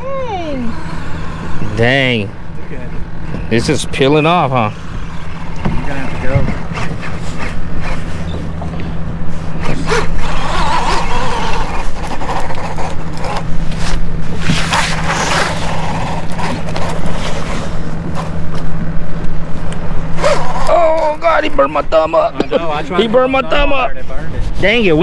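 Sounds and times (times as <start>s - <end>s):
boat engine idling: 0.0s - 23.8s
rustling noise: 13.4s - 18.5s.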